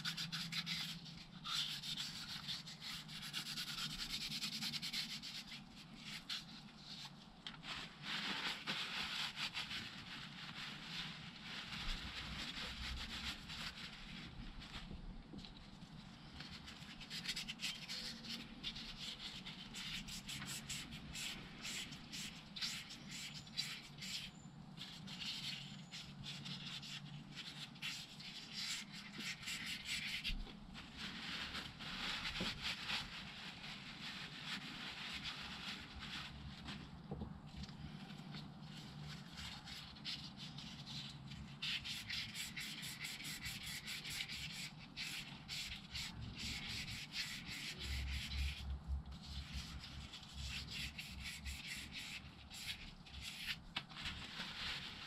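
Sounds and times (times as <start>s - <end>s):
abrasive paper rubbing metal: 0.0s - 14.8s, 16.5s - 37.0s, 37.8s - 55.0s.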